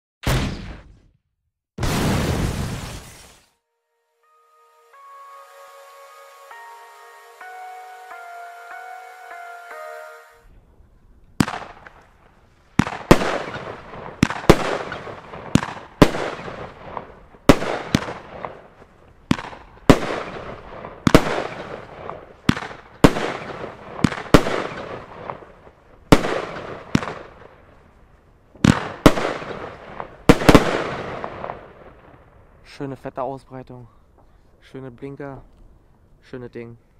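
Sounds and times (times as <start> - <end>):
fireworks sharp bangs: 11.4 - 27.5, 28.6 - 32.2.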